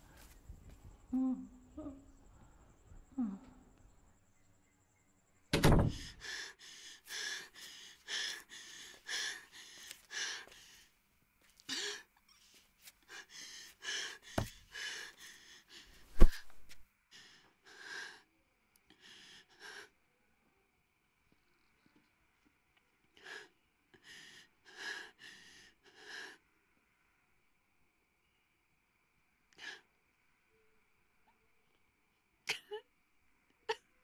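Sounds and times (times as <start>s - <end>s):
woman gasping and breathing heavily: 5.9s - 10.9s, 11.6s - 16.8s.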